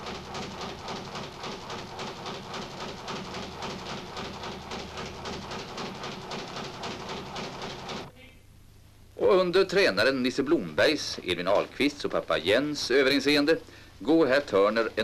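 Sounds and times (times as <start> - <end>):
speed bag rattling: 0.0 - 8.1.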